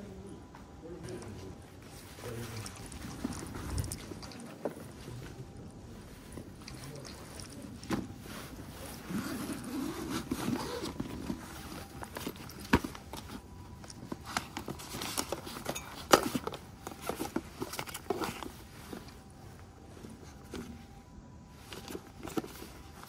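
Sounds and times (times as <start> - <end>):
nylon fabric rustling: 1.8 - 14.8
zipper: 9.0 - 11.0.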